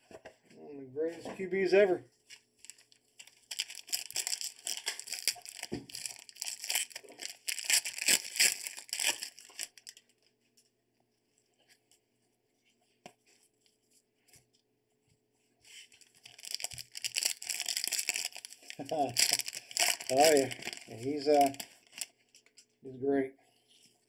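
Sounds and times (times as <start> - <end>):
card pack wrapper crinkling: 2.6 - 10.1, 15.8 - 22.6.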